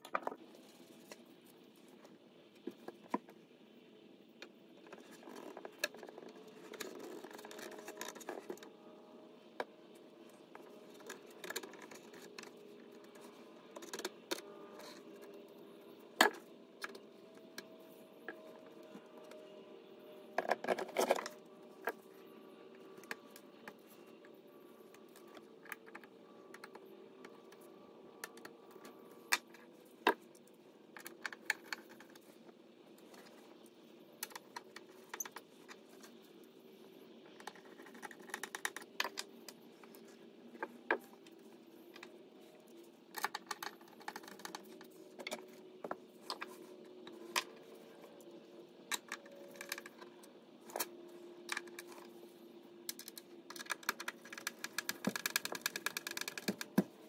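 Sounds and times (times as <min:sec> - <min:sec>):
faint steady hum: 0:00.0 - 0:57.0
small hard objects clicking: 0:52.9 - 0:56.9.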